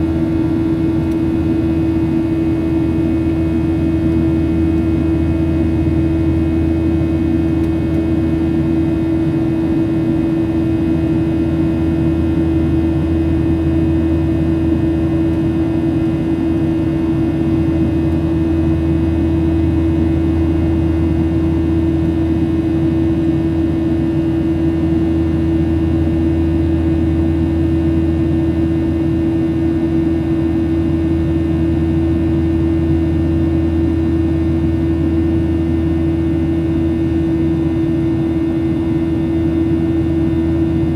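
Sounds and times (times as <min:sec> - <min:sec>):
airplane cabin drone: 0:00.0 - 0:40.9.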